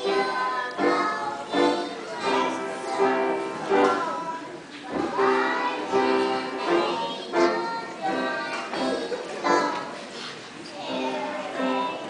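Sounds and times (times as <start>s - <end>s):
children singing in unison: 0.0s - 10.1s, 10.7s - 12.0s.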